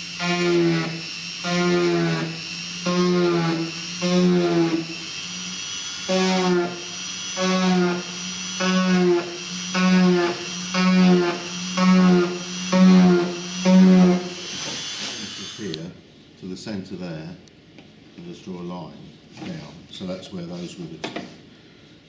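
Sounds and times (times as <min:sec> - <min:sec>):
rotary tool buzzing grind: 0:00.0 - 0:15.8
rotary tool whining: 0:00.0 - 0:15.8.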